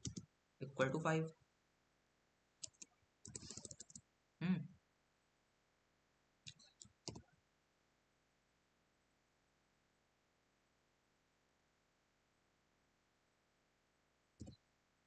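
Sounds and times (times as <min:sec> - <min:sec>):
keyboard keys clicking: 0:02.6 - 0:04.0, 0:06.5 - 0:07.2.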